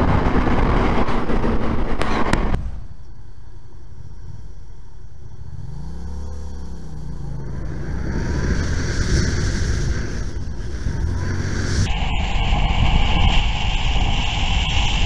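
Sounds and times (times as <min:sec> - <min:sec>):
wind noise on microphone: 0:00.0 - 0:03.0, 0:07.7 - 0:15.0.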